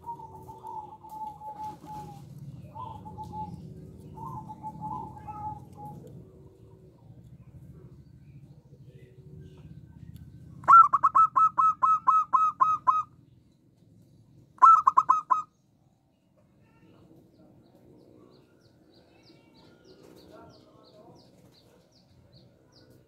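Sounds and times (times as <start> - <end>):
dove cooing: 0.0 - 7.9, 10.5 - 13.2, 14.6 - 15.5.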